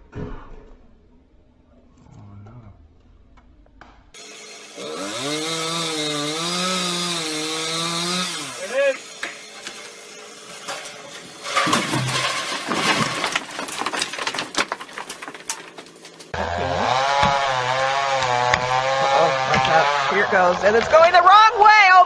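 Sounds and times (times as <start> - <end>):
chainsaw cutting with sharp cracks: 4.1 - 21.2
chainsaw sawing through trunk: 4.4 - 14.5, 16.3 - 21.1.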